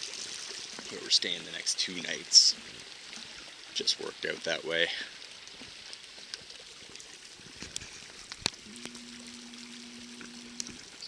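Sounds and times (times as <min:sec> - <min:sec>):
creek rushing: 0:00.0 - 0:06.0
low steady hum: 0:08.6 - 0:11.0.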